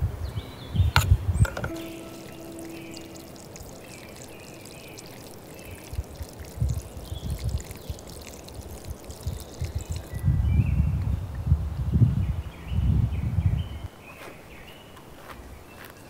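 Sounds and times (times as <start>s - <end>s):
low rumbles: 0.0s - 13.9s
water pouring onto rocks: 1.6s - 10.2s.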